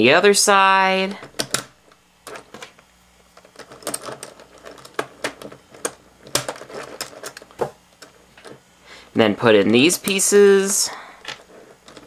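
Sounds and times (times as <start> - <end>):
plastic puzzle pieces clicking: 1.3 - 1.7, 3.4 - 8.6.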